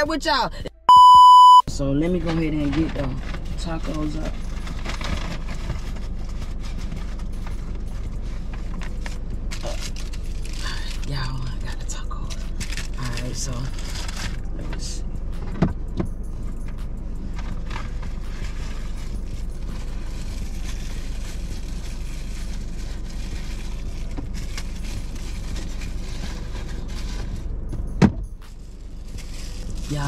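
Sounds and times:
low hum inside car cabin: 0.0s - 30.0s
food packaging rustling: 29.0s - 30.0s.

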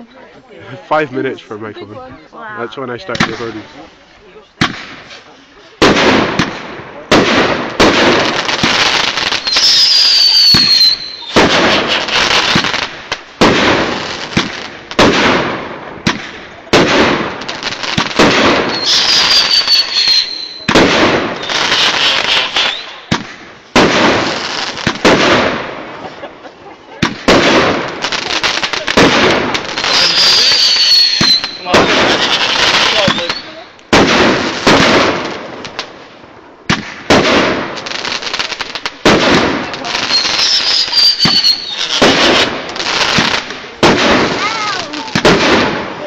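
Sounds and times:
fireworks banging and crackling: 0.0s - 46.0s
falling firework whistle: 9.4s - 12.4s, 18.5s - 20.8s, 21.4s - 23.0s, 29.9s - 33.6s, 40.1s - 42.0s.

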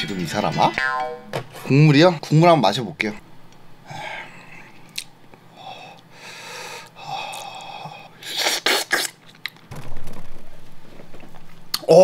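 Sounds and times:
person slurping broth: 8.2s - 9.2s.

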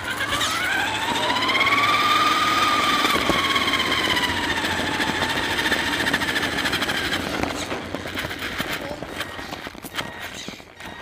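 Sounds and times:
electric motor and gears whining: 0.0s - 11.0s.

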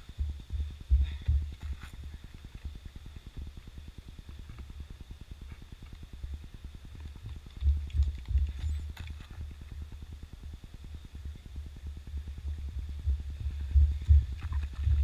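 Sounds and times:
wind buffeting microphone: 0.0s - 15.0s
faint ticks: 0.6s - 11.2s.

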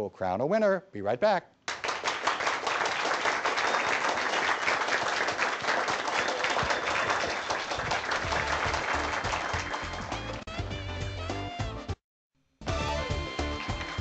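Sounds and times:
people clapping: 1.7s - 11.4s, 12.7s - 14.0s.

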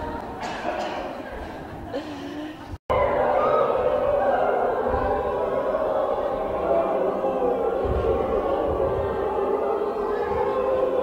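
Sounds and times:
group of people singing: 2.9s - 11.0s.

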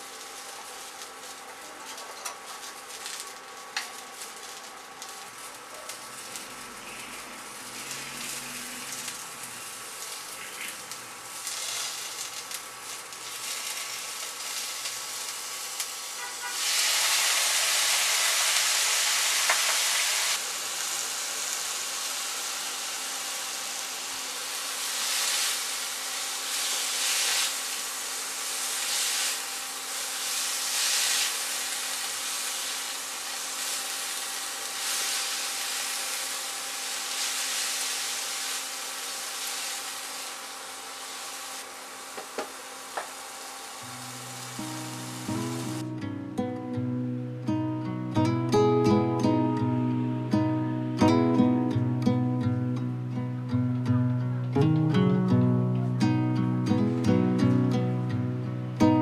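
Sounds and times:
vegetables sizzling in a frying pan: 0.0s - 46.0s.

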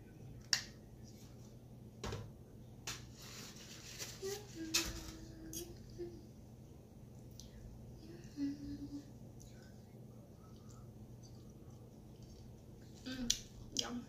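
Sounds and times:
paper napkin rustling: 3.0s - 5.3s.

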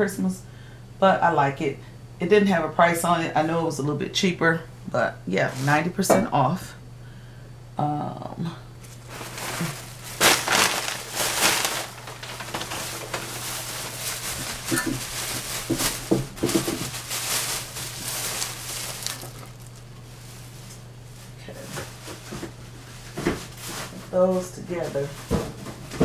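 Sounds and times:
steady low hum: 0.0s - 26.0s
plastic bag rustling: 8.8s - 26.0s.

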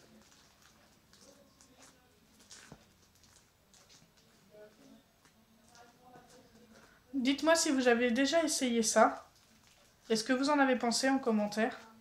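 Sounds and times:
slime crackling and popping: 0.0s - 6.5s, 9.1s - 10.3s.

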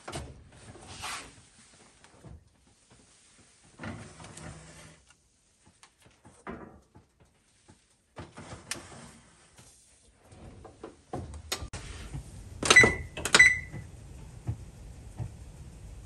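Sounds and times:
oven door shutting: 10.3s - 15.4s
electronic keypad beeps: 12.7s - 13.8s.

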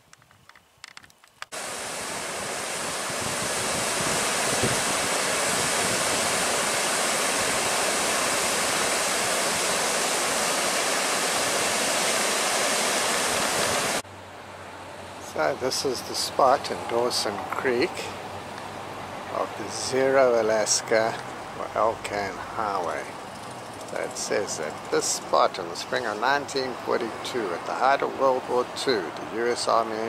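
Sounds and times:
waterfall rushing: 1.5s - 14.0s.

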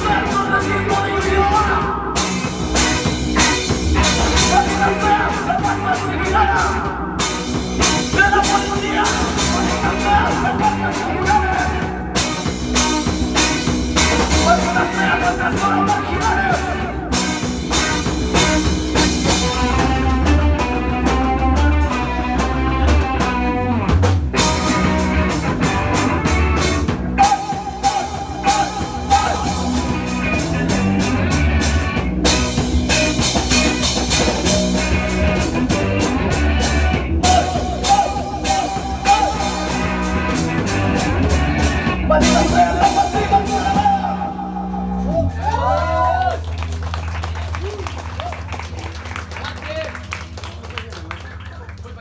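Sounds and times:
person singing: 0.0s - 2.2s, 4.0s - 7.0s, 14.2s - 17.0s, 27.2s - 30.9s, 37.2s - 39.9s, 42.1s - 45.2s
drum kit: 0.0s - 50.6s
electric guitars: 0.0s - 51.2s
bass guitar: 0.0s - 52.0s.

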